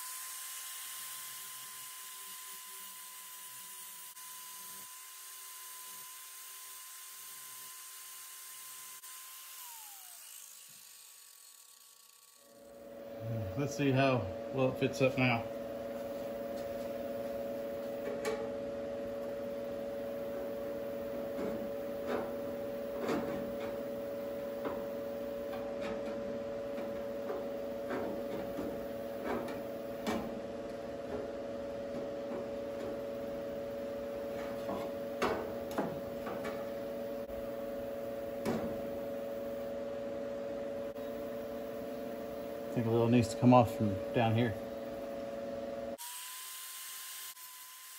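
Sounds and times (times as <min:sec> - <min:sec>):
steady hum: 0:12.4 - 0:46.0.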